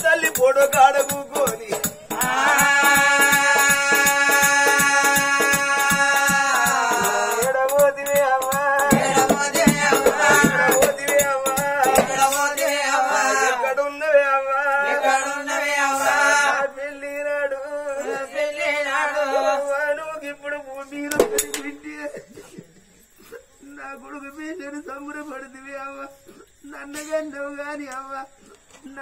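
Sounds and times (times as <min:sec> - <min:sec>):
drum and percussion: 0:00.0 - 0:13.6, 0:21.1 - 0:21.9.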